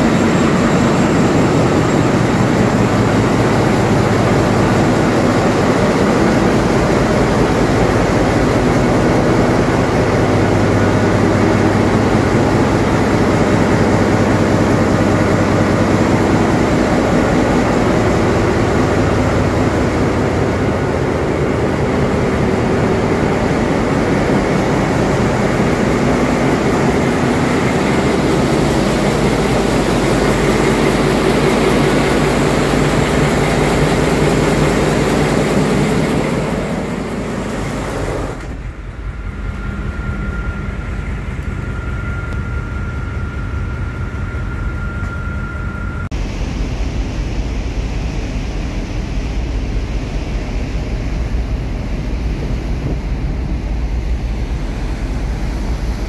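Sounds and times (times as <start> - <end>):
engine room machinery noise: 0.0 - 56.0
high electrical whine: 0.0 - 56.0
wind and sea rush: 46.1 - 56.0.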